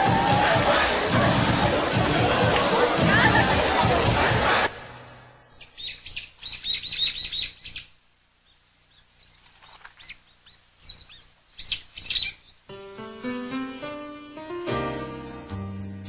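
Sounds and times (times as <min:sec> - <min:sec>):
small birds chirping: 0:05.5 - 0:12.7.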